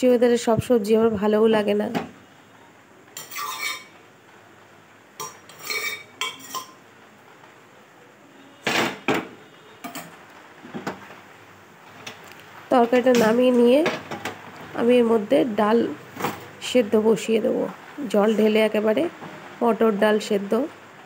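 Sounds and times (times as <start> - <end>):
metal spoon scraping pot: 3.2 - 3.9, 5.2 - 6.8.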